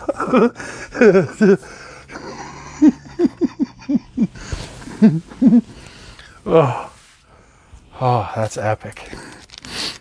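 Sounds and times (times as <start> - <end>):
man laughing in short bursts: 0.0 - 5.8
voiced sounds: 0.0 - 7.1.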